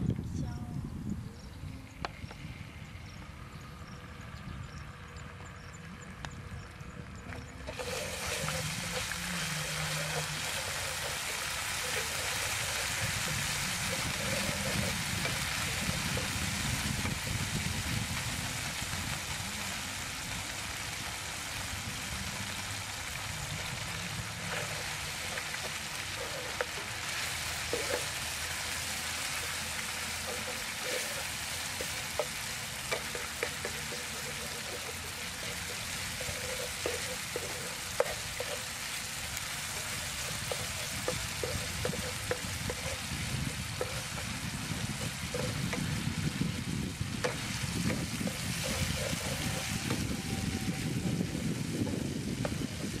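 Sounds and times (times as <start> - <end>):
food sizzling in oil: 7.6 - 53.0
spatula tapping and scraping pan: 7.8 - 16.4, 24.5 - 39.0, 39.6 - 46.0, 47.2 - 50.0.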